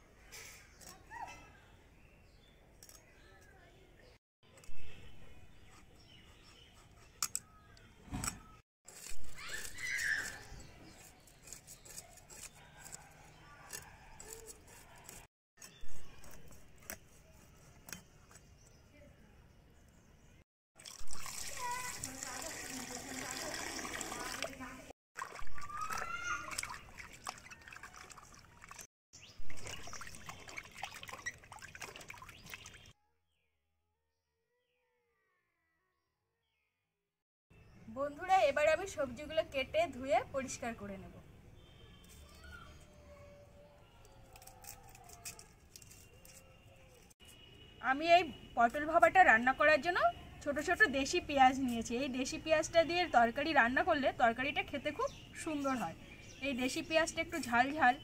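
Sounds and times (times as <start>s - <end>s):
knife scraping fish scales: 8.9s - 18.6s, 44.0s - 47.4s
water splashing in a metal bowl: 20.8s - 32.9s.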